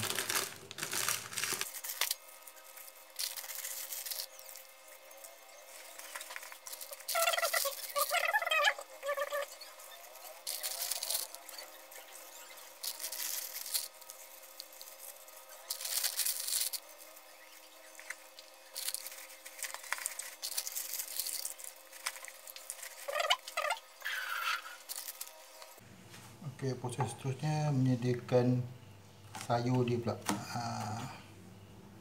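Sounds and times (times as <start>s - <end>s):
cabbage leaves rustling and crinkling: 0.0s - 4.4s.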